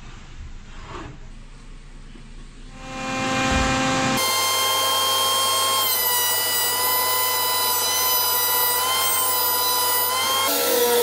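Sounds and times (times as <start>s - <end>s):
jointer motor whining: 2.8s - 11.0s.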